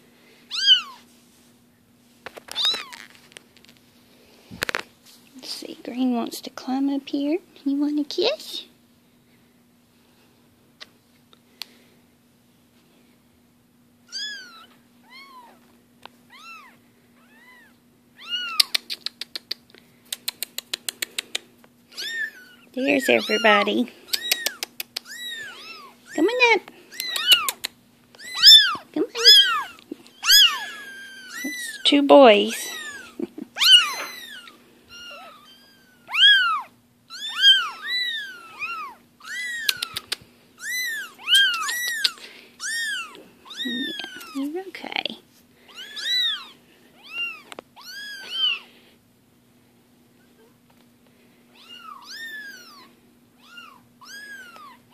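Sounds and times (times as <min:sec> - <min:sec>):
kittens mewing: 0:00.5 - 0:01.1, 0:02.5 - 0:03.1, 0:14.0 - 0:15.6, 0:16.3 - 0:19.5, 0:20.8 - 0:31.9, 0:32.5 - 0:44.5, 0:45.6 - 0:48.8, 0:51.5 - 0:54.9.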